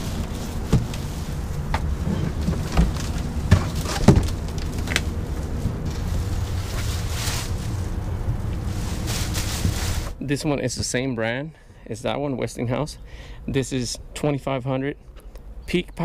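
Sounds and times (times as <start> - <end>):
cardboard and plastic rustling: 0.0 - 10.2
low rumble: 0.0 - 10.6.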